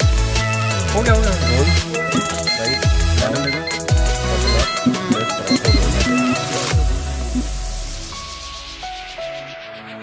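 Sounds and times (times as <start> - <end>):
electronic dance music: 0.1 - 8.2.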